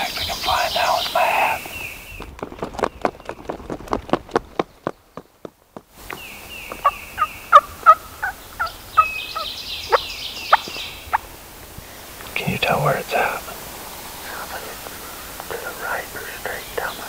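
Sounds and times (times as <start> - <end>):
wild turkey gobbling: 6.7 - 12.3, 13.2 - 15.8.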